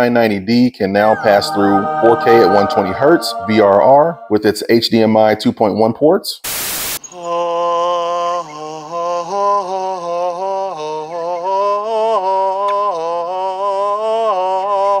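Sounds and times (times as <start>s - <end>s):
man chanting in long notes: 1.0s - 5.0s.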